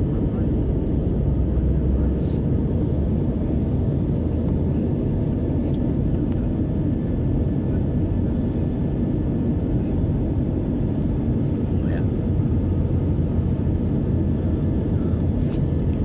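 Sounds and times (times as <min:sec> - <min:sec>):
airliner cabin drone: 0:00.0 - 0:16.0.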